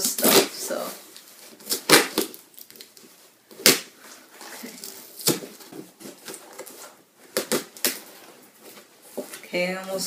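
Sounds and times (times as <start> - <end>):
cardboard rustling: 0.1 - 9.6
cardboard package ripping: 1.6 - 3.9.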